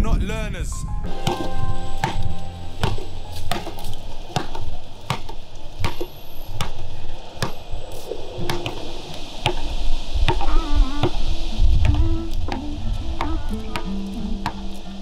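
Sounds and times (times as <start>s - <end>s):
bass and melody: 0.8s - 4.5s, 10.5s - 15.0s
hip-hop drum beat: 1.1s - 3.8s.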